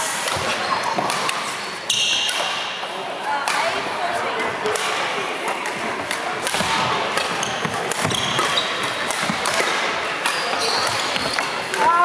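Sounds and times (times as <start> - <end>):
echoing background of people: 0.0 - 12.0
racket hitting shuttlecock: 0.2 - 2.8, 4.4 - 11.9
shoes squeaking on wooden floor: 7.2 - 9.1, 10.3 - 11.9.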